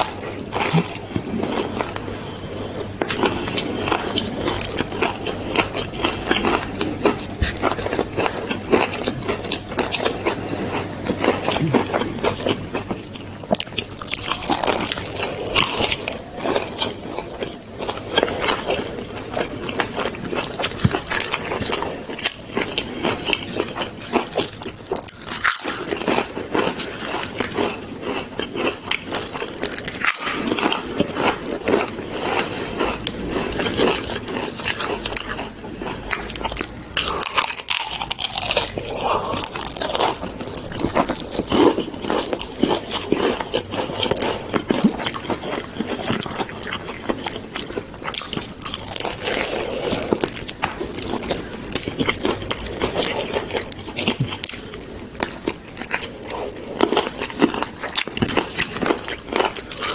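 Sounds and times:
crunching fried chicken: 0.0s - 59.9s.

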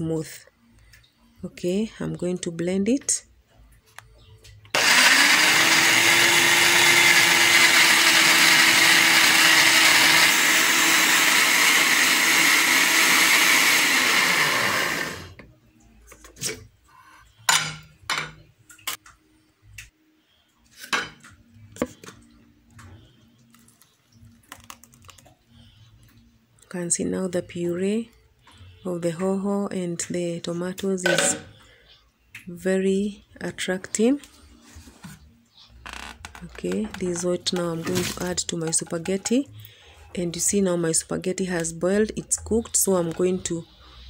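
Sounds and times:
electric blender running: 4.8s - 15.4s.

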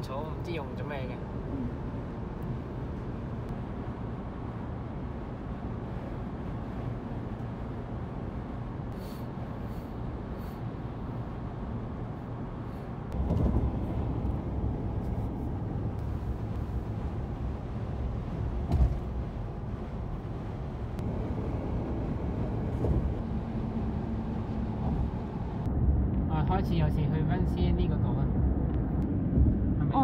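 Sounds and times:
car road and engine noise: 0.0s - 30.0s
low thump: 13.2s - 13.9s, 18.6s - 19.3s, 22.6s - 23.2s.

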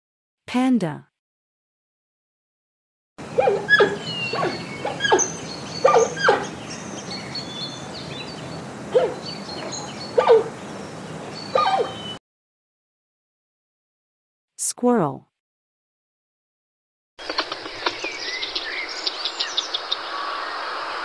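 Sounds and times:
giant panda calling: 3.4s - 6.5s.

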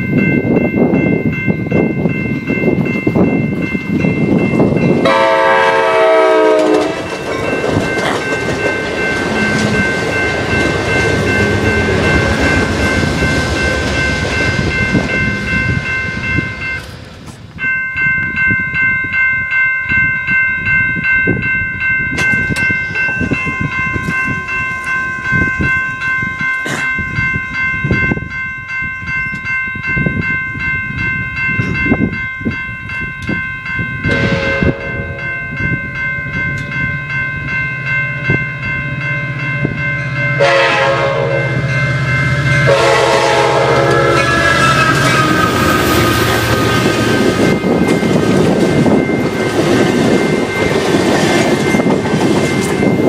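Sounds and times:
railroad crossing bell ringing: 0.0s - 53.0s
train wheels clicking on rails: 1.8s - 17.6s, 42.0s - 53.0s
train horn: 5.0s - 7.1s, 34.1s - 35.3s, 40.4s - 41.6s, 42.6s - 45.8s.

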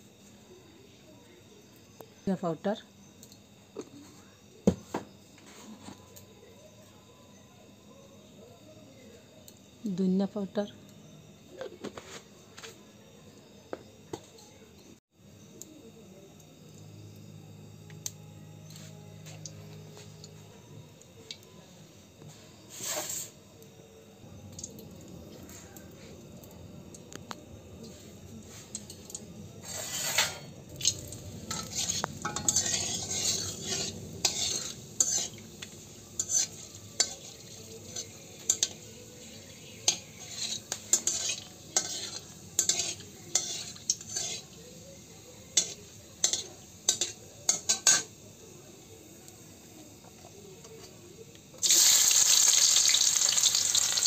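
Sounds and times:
spices sizzling in hot oil: 15.2s - 27.1s, 27.7s - 54.0s
metal spatula scraping a pan: 22.7s - 23.4s, 29.6s - 30.6s, 31.4s - 44.6s, 45.6s - 48.1s.

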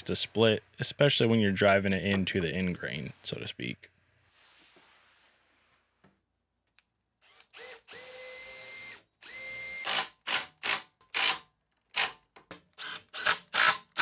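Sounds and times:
cordless drill whining: 7.2s - 11.4s, 12.8s - 14.0s
impact driver driving screws: 7.3s - 12.2s, 12.8s - 14.0s.

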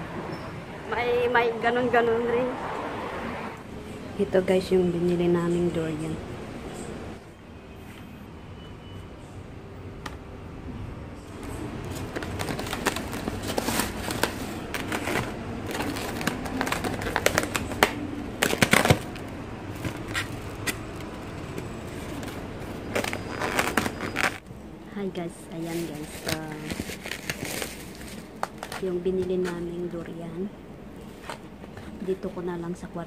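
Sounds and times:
plastic bags rustling: 11.3s - 24.5s, 25.4s - 30.2s
styrofoam boxes being opened: 11.4s - 24.4s, 25.6s - 29.7s.

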